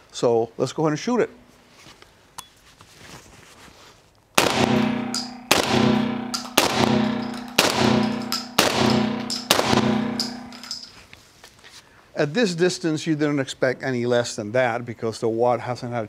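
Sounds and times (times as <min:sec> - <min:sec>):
shotgun shots: 0:04.4 - 0:10.8
ringing echo: 0:04.4 - 0:11.0.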